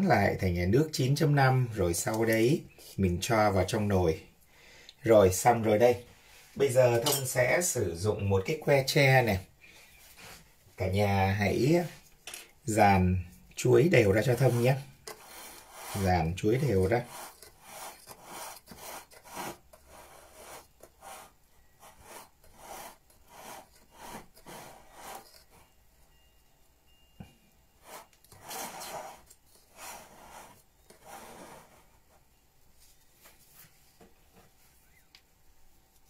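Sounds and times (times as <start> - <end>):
spatula scraping cake batter: 13.6 - 25.8, 27.8 - 32.3.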